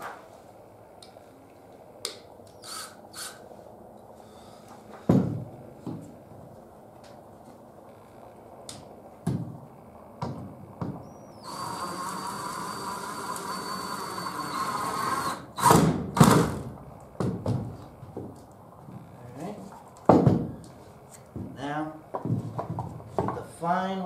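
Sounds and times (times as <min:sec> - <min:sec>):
loud knocks: 0:05.0 - 0:06.0, 0:20.1 - 0:20.6
cordless driver whining: 0:11.1 - 0:16.5.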